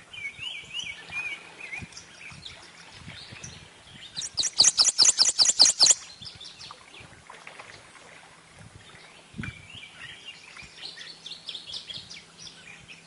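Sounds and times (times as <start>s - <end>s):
warbler singing high notes: 3.4s - 6.7s
faint bird chirps: 4.0s - 6.7s.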